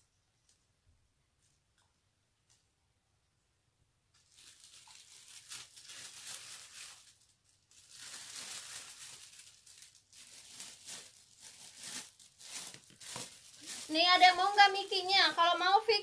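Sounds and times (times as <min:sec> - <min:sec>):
rustling and crinkling handling noise: 0:04.1 - 0:16.0.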